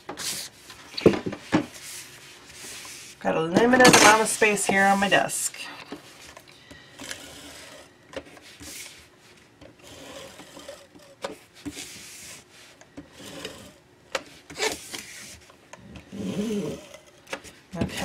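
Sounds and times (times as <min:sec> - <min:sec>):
applicator rubbing on paper: 0:07.0 - 0:09.1, 0:09.8 - 0:13.8.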